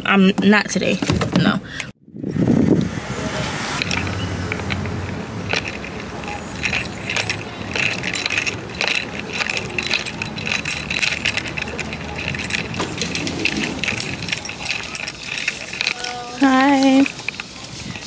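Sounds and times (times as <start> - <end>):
keys jingling: 3.8 - 18.0.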